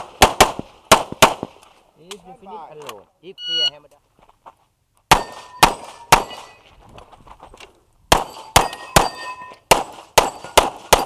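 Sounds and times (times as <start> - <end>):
pistol shots: 0.0 - 1.5, 5.1 - 6.6, 8.1 - 11.0
steel targets clanging: 5.2 - 6.7, 8.2 - 10.6.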